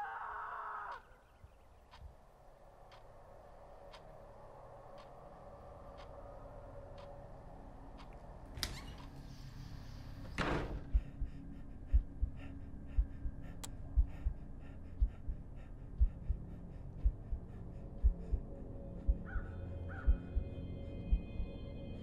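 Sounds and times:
heartbeat thumps: 0:10.8 - 0:20.5.

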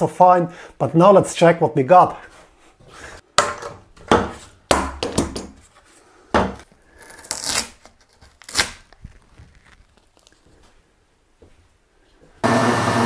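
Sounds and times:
peel-off layers tearing: 0:06.8 - 0:10.6.

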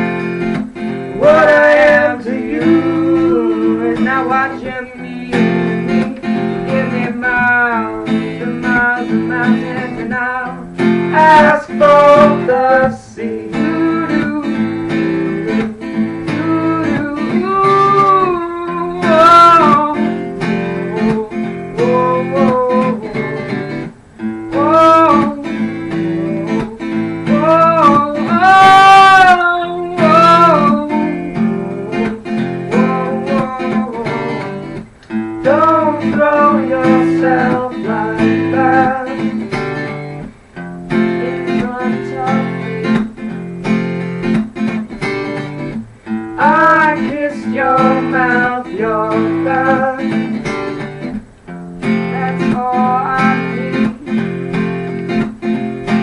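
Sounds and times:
acoustic guitar strumming: 0:00.0 - 0:56.0
woman singing: 0:01.2 - 0:15.6, 0:16.2 - 0:23.8, 0:24.6 - 0:34.7, 0:35.4 - 0:39.4, 0:46.4 - 0:50.4, 0:52.1 - 0:54.2.

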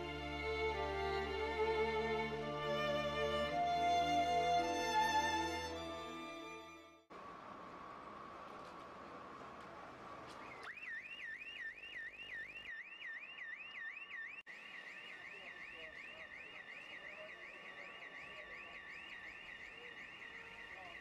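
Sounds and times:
car alarm warbling: 0:10.5 - 0:21.0.

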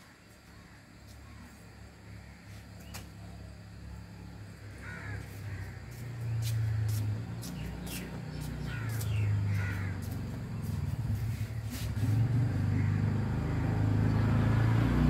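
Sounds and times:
low engine hum: 0:00.5 - 0:15.0
crows cawing: 0:04.6 - 0:07.0, 0:07.8 - 0:10.9, 0:12.6 - 0:13.7.

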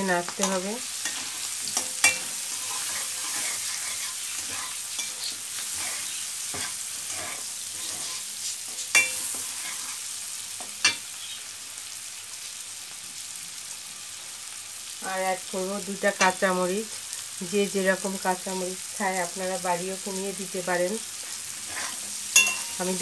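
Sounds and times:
food sizzling in a wok: 0:00.0 - 0:23.0
spatula clanking on pan: 0:00.4 - 0:03.4, 0:08.9 - 0:09.5, 0:10.6 - 0:11.1, 0:22.3 - 0:22.8
spatula scraping a wok: 0:00.4 - 0:10.2, 0:21.1 - 0:23.0.

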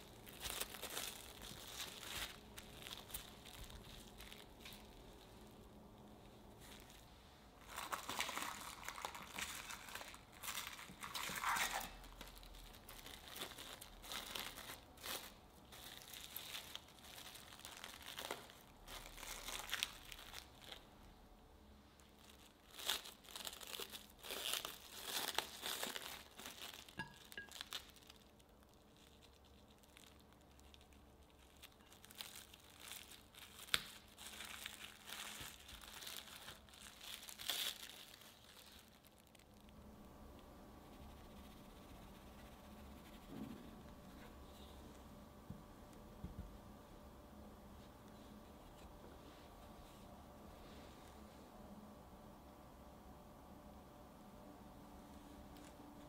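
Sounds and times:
plastic cling wrap crinkling: 0:00.0 - 0:21.1, 0:21.8 - 0:44.6.

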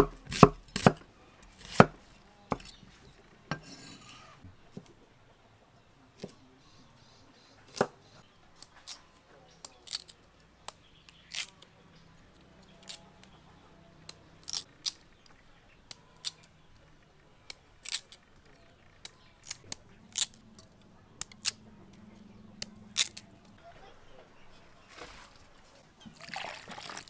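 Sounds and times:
knife scraping sweet potato skin: 0:09.6 - 0:10.2, 0:10.8 - 0:11.6, 0:12.7 - 0:13.1, 0:17.8 - 0:18.2, 0:22.9 - 0:23.2.

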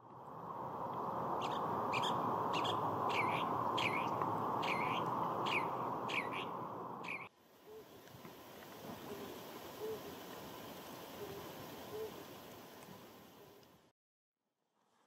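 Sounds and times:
steady rushing noise: 0:00.0 - 0:07.2
bird singing short clear notes: 0:01.4 - 0:07.3.

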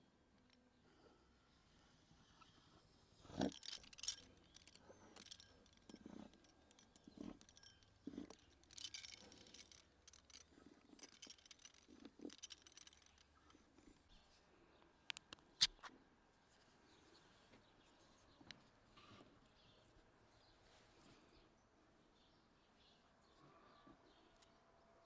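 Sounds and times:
light metallic clinks: 0:03.3 - 0:14.2.

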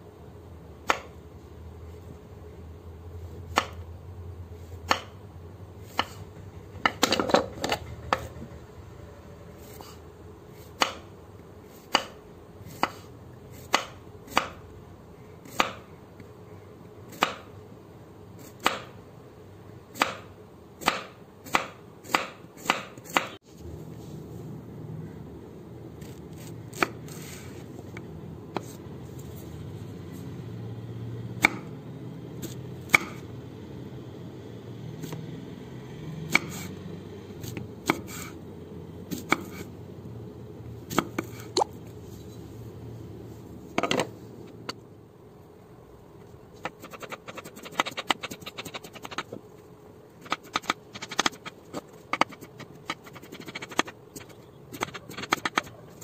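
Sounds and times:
knife cutting on wooden board: 0:39.1 - 0:39.7.

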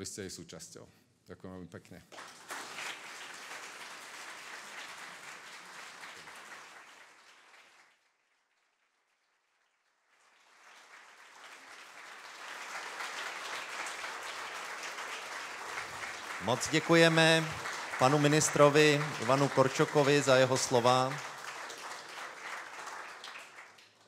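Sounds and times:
audience applauding: 0:02.1 - 0:24.0.

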